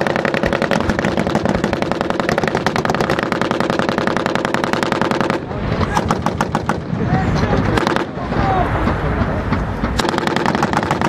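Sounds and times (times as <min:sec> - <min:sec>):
machine-gun fire: 0:00.0 - 0:06.9, 0:10.0 - 0:11.0.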